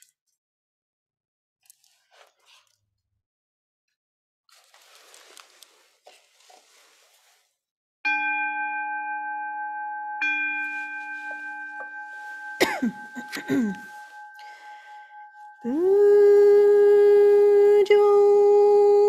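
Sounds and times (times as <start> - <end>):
faint rustling: 4.5 - 7.6, 10.5 - 15.7
bowl bell ringing: 8.1 - 19.0.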